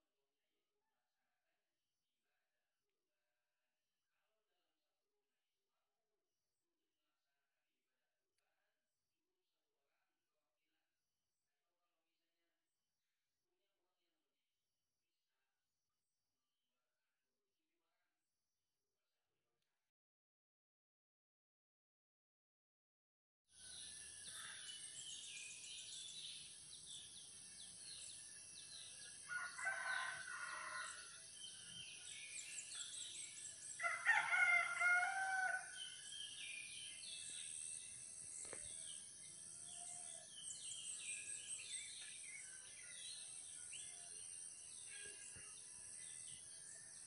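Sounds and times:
rooster crowing: 29.3 - 31.1, 33.8 - 35.8
small birds chirping: 35.9 - 45.6.

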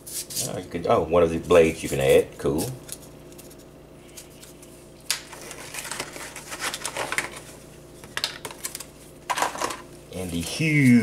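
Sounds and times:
steady low hum: 0.0 - 11.0
plastic packaging rustling: 5.2 - 7.6.

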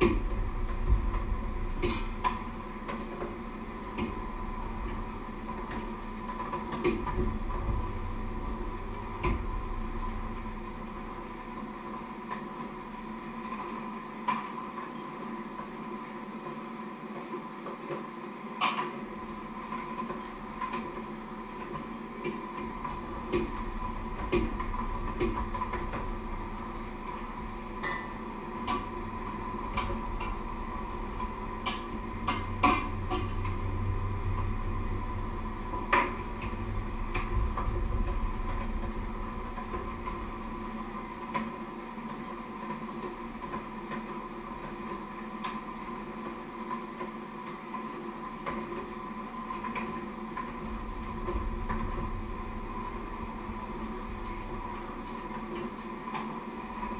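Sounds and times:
low rumble: 0.0 - 13.2, 20.3 - 43.8, 50.3 - 55.6
steady hum: 0.0 - 56.9.

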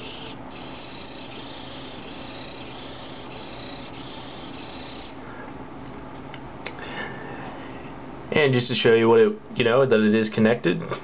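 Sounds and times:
servo motor whining: 0.0 - 5.2.

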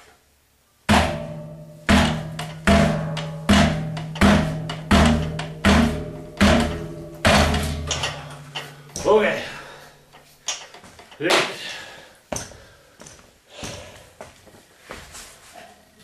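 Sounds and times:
hammer blows on metal: 0.9 - 9.7
low hum: 0.9 - 10.2.

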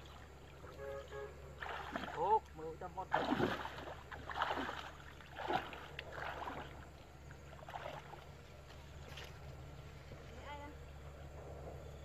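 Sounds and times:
shallow water splashing: 0.0 - 9.5.

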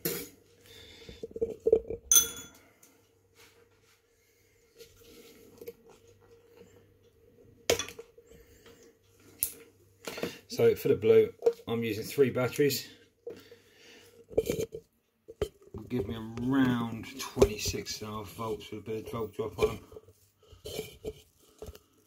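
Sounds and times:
glass jars clinking and knocking: 1.3 - 2.6, 7.7 - 8.0.

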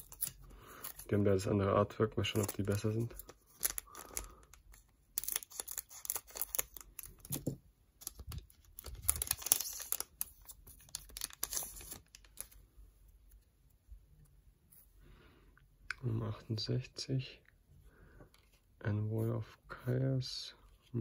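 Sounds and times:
foil wrapper tearing and crinkling: 2.3 - 4.5, 5.2 - 7.4, 8.0 - 12.5.

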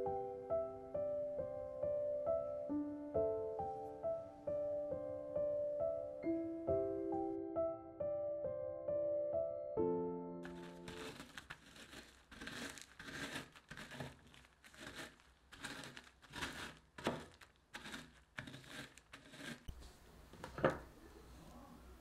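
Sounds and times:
biscuits crunching under rolling pin: 10.4 - 19.8
plastic bag crinkling: 10.4 - 19.8.

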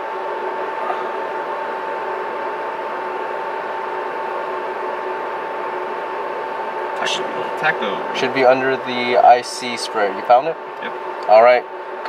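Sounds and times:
machine hum with high whine: 0.0 - 12.0.

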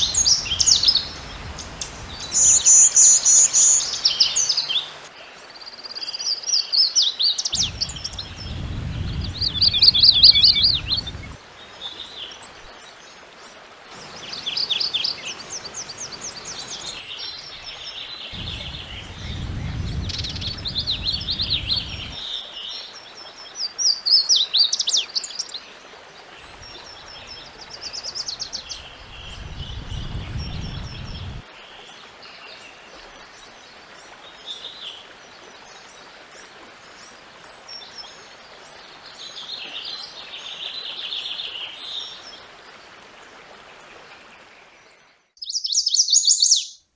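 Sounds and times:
warbler songs: 0.0 - 46.9
low rumble: 18.4 - 22.2.

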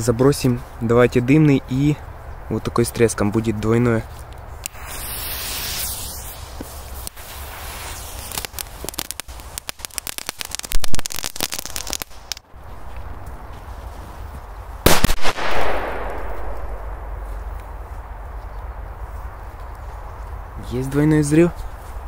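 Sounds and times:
firecrackers crackling pops: 4.6 - 12.5, 14.8 - 17.7
firecracker fuse hiss: 4.7 - 12.4
loud firecracker bangs: 14.8 - 17.2.

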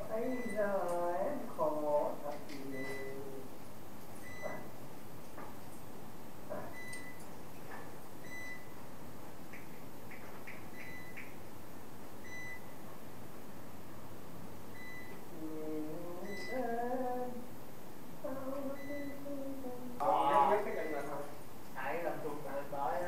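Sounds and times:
person's voice: 0.0 - 3.5, 18.2 - 23.0
steady background hiss: 0.0 - 23.0.

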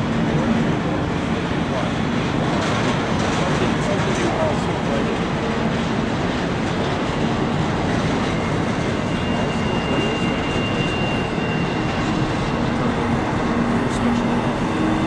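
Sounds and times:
steel train wheels on rail: 0.0 - 15.0
high wheel squeal: 7.5 - 15.0.

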